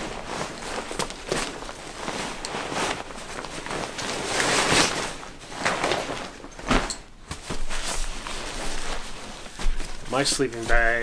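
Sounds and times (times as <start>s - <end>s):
nylon fabric rustling and scraping: 0.0s - 11.0s.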